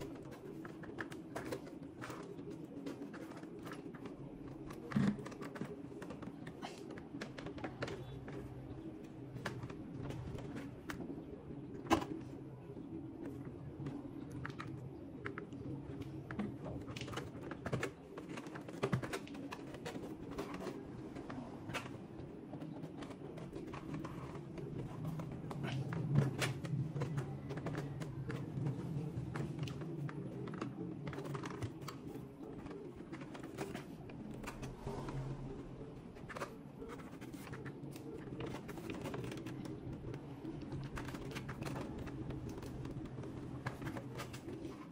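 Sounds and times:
steady low hum: 0.0s - 44.9s.

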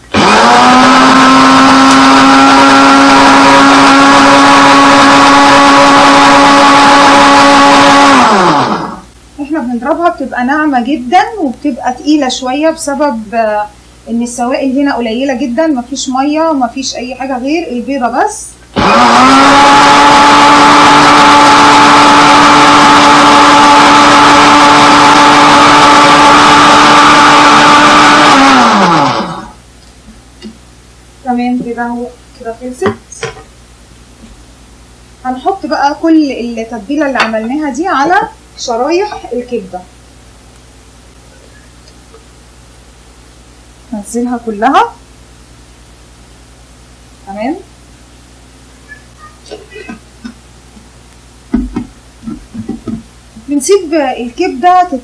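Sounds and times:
electric blender running: 0.1s - 9.1s, 18.8s - 29.6s.

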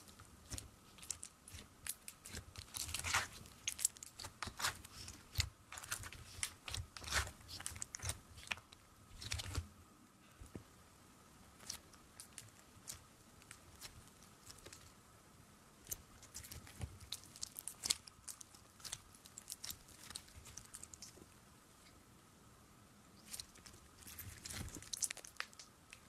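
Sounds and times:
slime squeezed with sticky crackles: 0.0s - 9.7s, 23.2s - 26.0s.

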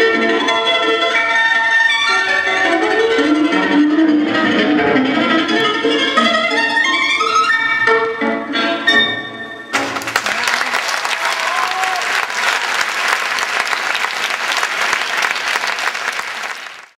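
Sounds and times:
string music: 0.0s - 10.4s
audience applause: 9.8s - 17.0s.

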